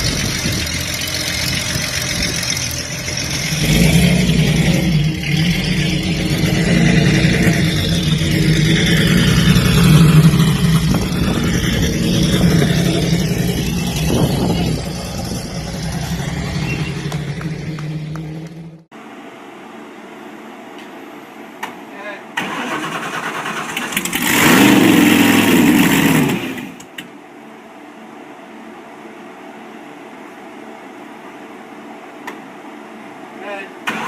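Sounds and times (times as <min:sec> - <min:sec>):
car engine revving: 0:00.0 - 0:18.9, 0:22.5 - 0:26.9.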